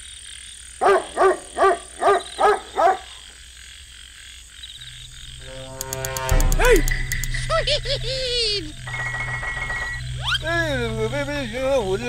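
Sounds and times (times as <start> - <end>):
frog croaking: 0.0 - 6.3, 7.1 - 12.0
high-pitched night background: 4.5 - 12.0.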